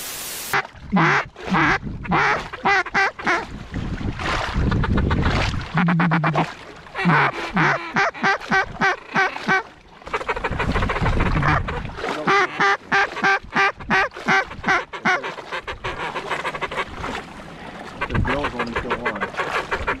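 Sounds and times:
wind buffeting microphone: 0.8 - 2.6, 3.2 - 6.3, 10.3 - 12.2, 16.8 - 20.0
duck call quacks: 0.9 - 3.4, 5.8 - 10.6, 11.3 - 16.9, 18.0 - 20.0.

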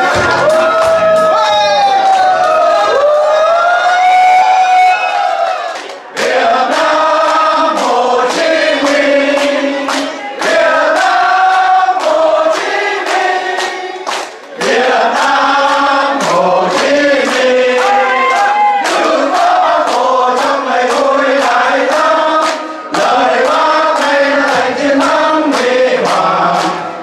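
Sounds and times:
group singing in unison: 6.1 - 27.0.

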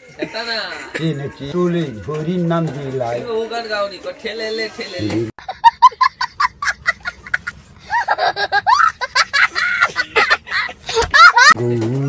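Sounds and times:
child laughing loudly: 5.4 - 11.6.

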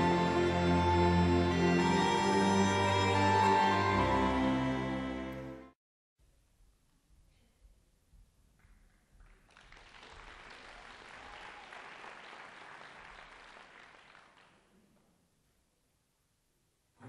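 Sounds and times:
faint audience applause: 9.1 - 14.9.

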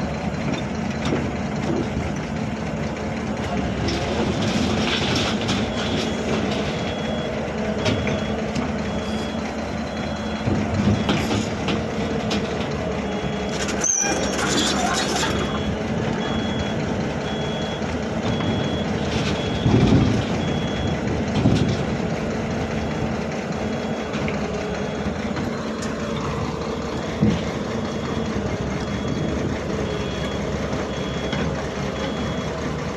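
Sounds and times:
diesel engine running: 0.0 - 32.9
excavator alarm beeping: 3.2 - 22.1, 22.7 - 32.9
heavy clunks: 9.9 - 13.6, 18.2 - 22.1, 27.0 - 32.4.

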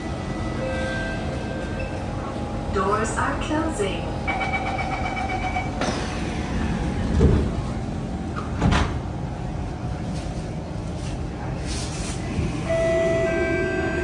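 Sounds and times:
low train hum: 0.0 - 14.0
door-closing warning beeps: 4.2 - 5.9
sliding doors thudding shut: 8.4 - 9.0.

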